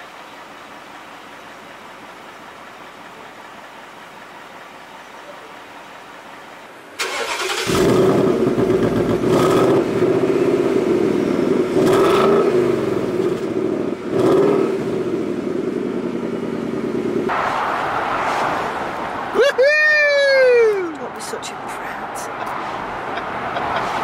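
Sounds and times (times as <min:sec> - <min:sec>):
car engine starting and idling: 0:00.0 - 0:24.0
engine revving: 0:07.0 - 0:19.0
rushing noise: 0:17.3 - 0:24.0.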